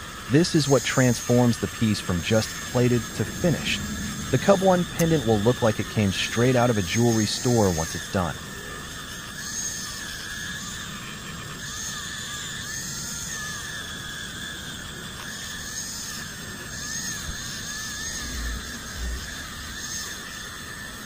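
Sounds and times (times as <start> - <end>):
rotary tool high whine: 0.0 - 21.0
low bumps: 1.8 - 6.6.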